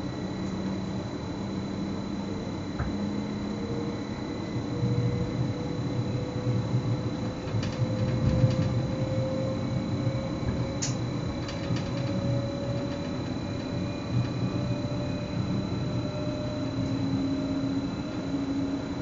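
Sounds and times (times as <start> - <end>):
train wheels rumbling on rail: 6.6 - 14.5.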